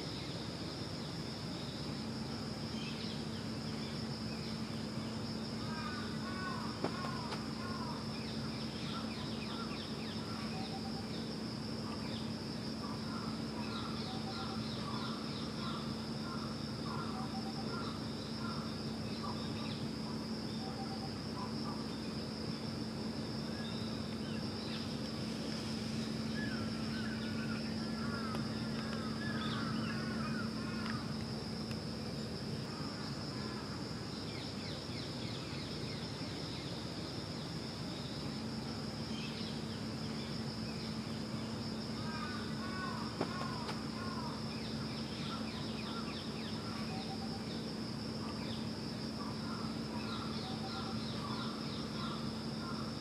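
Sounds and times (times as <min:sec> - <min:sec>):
high-pitched insect drone: 0:00.0 - 0:53.0
insect chirps: 0:00.0 - 0:53.0
low steady hum: 0:00.0 - 0:53.0.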